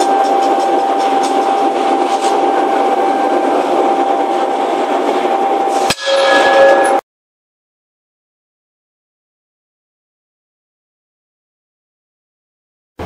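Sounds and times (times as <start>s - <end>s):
forge machinery whine: 0.0s - 7.0s
steady tones: 0.0s - 7.0s
ram striking forging hammer: 5.9s - 7.0s.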